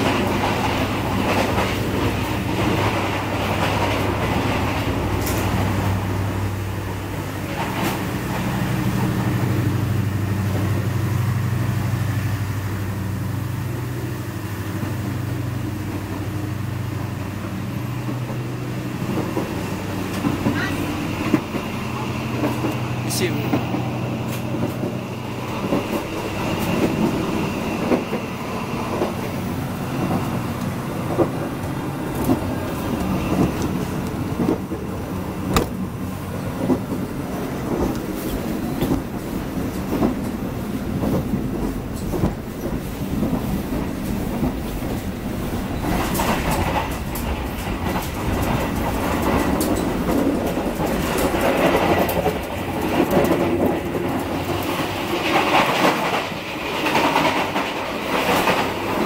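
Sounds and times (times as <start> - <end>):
clicks and knocks of train: 0.0 - 59.0
train wheels rumbling on rail: 0.0 - 59.0.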